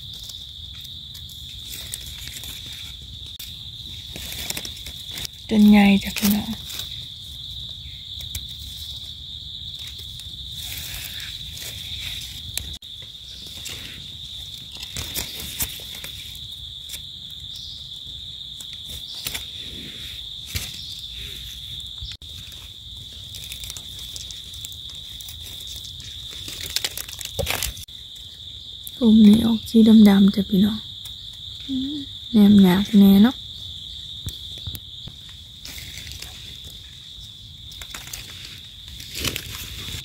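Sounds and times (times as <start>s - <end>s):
dry leaf litter crackling: 0.0s - 17.5s, 20.5s - 28.3s, 35.3s - 40.0s
insects trilling: 0.0s - 40.0s.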